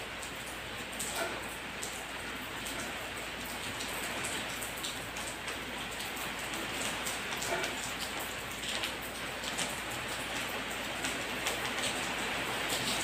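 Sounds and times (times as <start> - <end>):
steady rain falling: 0.0 - 13.0.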